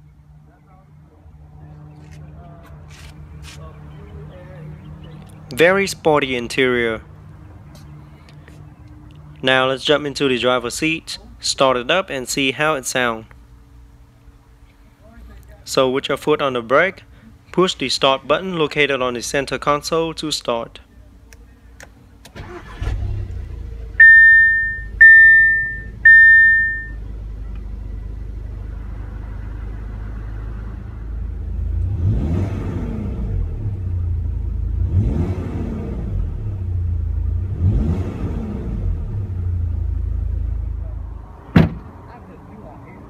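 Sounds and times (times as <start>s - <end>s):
car engine starting and idling: 21.8s - 41.0s
engine revving: 22.4s - 26.9s, 31.5s - 40.1s
loud beeps: 24.0s - 27.0s.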